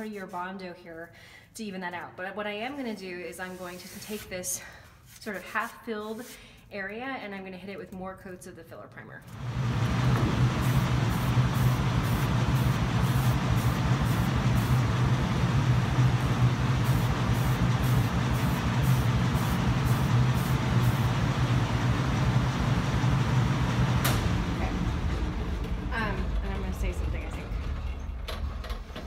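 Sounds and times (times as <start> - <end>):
low hum of fan or motor: 9.2 - 29.0
aerosol can spraying: 10.3 - 15.0, 16.6 - 21.1.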